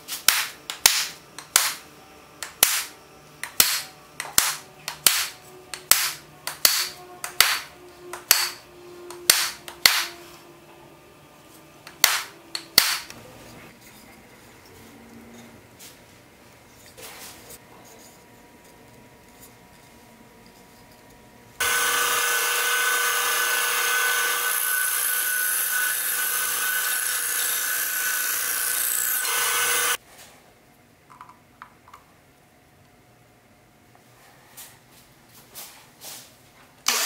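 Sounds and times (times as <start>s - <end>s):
band saw cutting wood: 21.6s - 30.0s.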